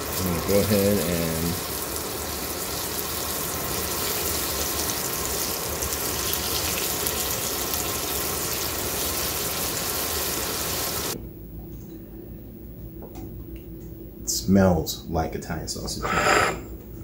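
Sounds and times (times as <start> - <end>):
sausage sizzling in oil: 0.0 - 11.2.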